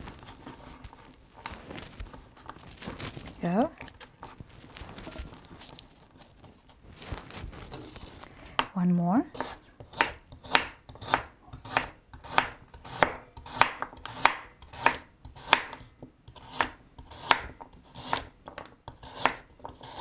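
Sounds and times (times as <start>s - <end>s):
knife slicing carrot on board: 9.3s - 20.0s.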